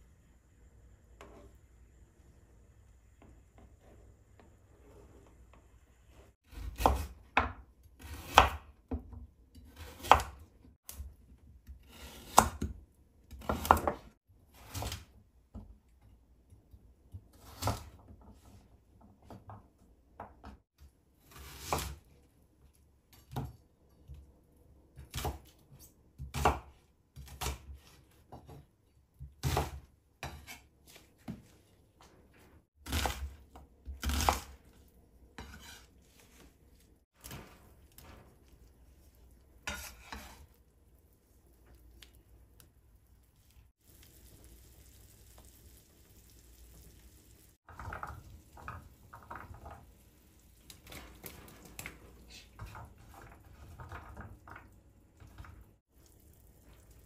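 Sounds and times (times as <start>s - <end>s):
knife cutting on cutting board: 35.4s - 36.4s.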